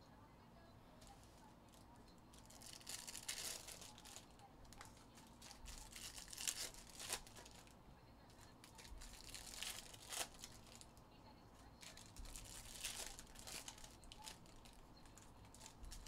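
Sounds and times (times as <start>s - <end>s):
foil wrapper crinkling and tearing: 2.3s - 7.8s, 8.4s - 11.0s, 11.7s - 16.0s.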